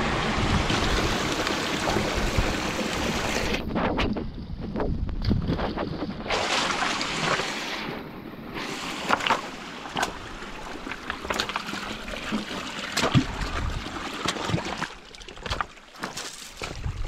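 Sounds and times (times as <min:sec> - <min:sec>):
trickle of water: 0:08.6 - 0:17.0
footsteps splashing through creek: 0:08.7 - 0:17.0.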